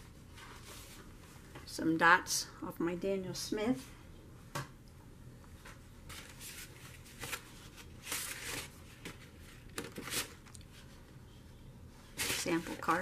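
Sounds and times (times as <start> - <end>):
paper rustling: 6.1 - 10.5.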